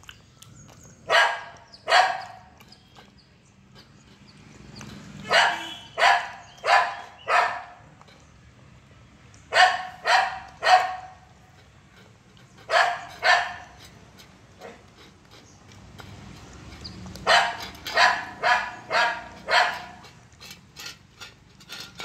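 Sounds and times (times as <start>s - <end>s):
dog barking: 1.1s - 2.5s, 5.2s - 7.8s, 9.5s - 11.2s, 12.7s - 13.7s, 17.2s - 20.0s.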